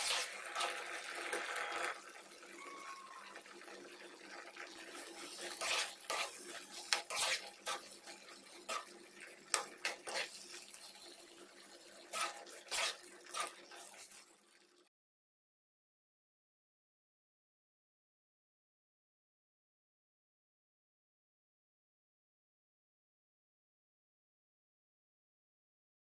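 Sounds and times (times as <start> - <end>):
metal spoon scraping a pan: 0.0 - 2.0, 4.6 - 14.4
sauce simmering hiss: 4.4 - 14.4.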